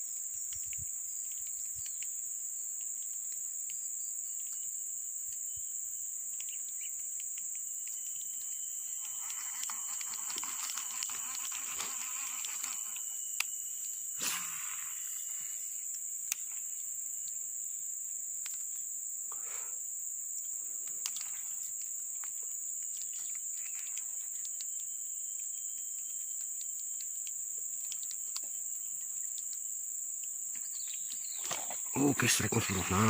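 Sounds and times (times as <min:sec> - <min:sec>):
insect drone: 0:00.0 - 0:33.0
faint clicks: 0:00.4 - 0:03.8, 0:06.3 - 0:13.6, 0:20.8 - 0:33.0.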